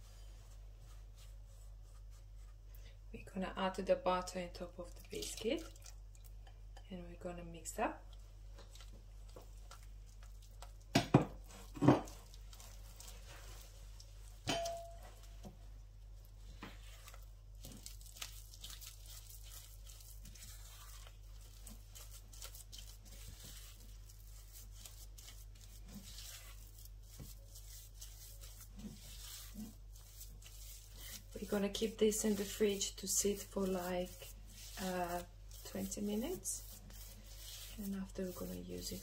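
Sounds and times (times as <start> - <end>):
knocks against glass bowl: 14.5 - 15.0
spatula scraping crumbs in bowl: 17.0 - 39.0.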